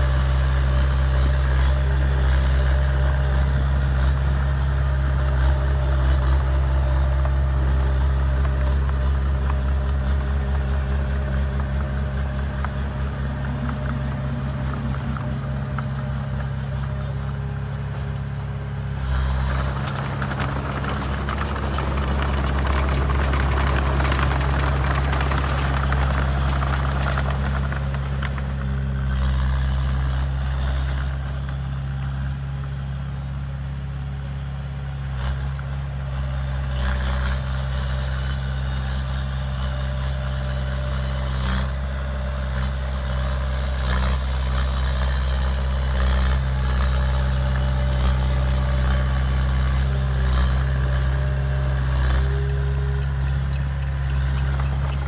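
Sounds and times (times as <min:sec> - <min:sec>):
bulldozer diesel engine running: 0:00.0 - 0:55.0
machine clanks: 0:19.4 - 0:28.6.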